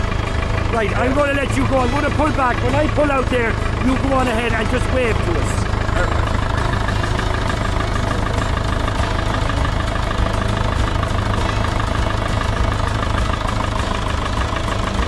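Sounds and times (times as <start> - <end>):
tractor engine running: 0.0 - 15.0.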